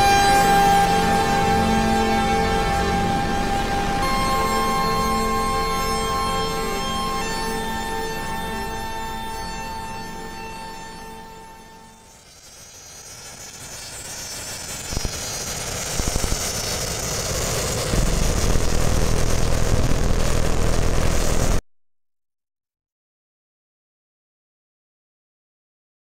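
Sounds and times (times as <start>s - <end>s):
deep rumble: 15.8s - 21.6s.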